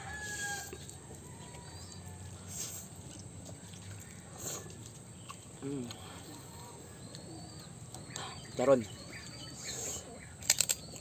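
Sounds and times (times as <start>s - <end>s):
faint bird calls: 3.5s - 11.0s.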